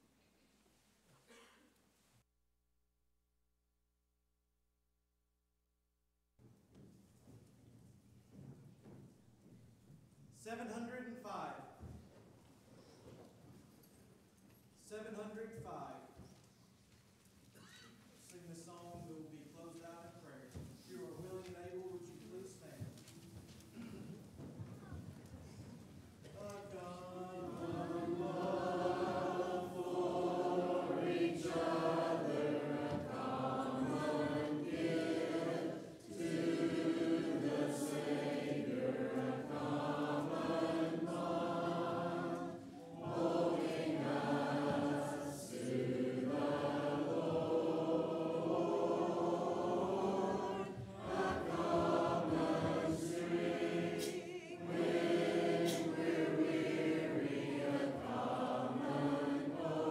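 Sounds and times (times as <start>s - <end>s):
congregation singing a hymn: 26.2s - 59.9s.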